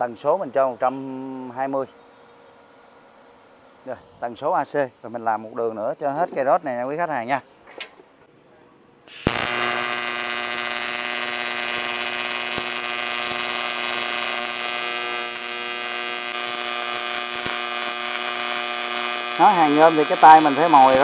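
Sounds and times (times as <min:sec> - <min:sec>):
welder click: 0:09.1 - 0:21.0
welding arc buzzing: 0:09.1 - 0:21.0.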